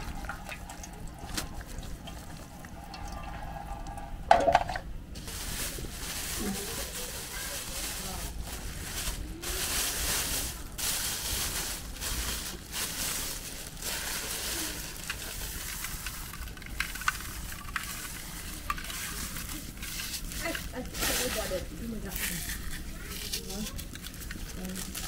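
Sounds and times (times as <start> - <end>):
plastic bag rustling: 0.0 - 3.2, 4.3 - 25.0
small sharp crackles: 9.0 - 25.0.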